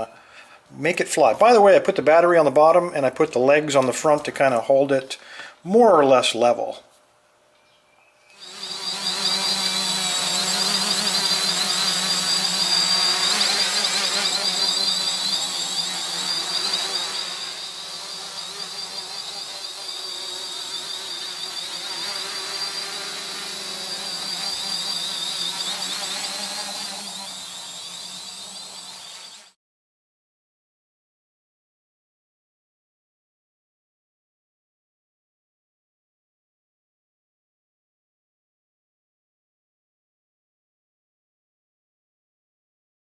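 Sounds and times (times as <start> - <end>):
quadcopter whine: 8.3 - 29.6.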